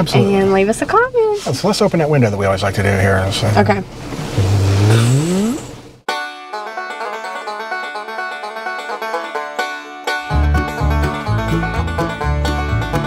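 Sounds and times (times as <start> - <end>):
bluegrass banjo music: 6.1 - 13.0.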